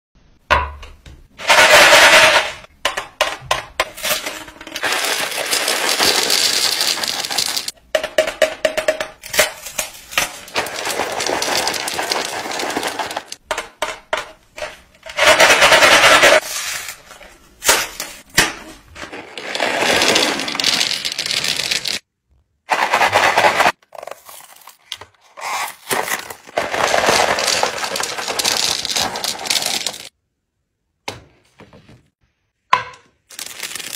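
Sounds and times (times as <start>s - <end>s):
candies rattling into wooden tray: 4.0s - 7.8s, 8.8s - 13.4s, 19.0s - 22.0s, 22.7s - 24.9s, 25.9s - 30.1s, 33.3s - 33.9s.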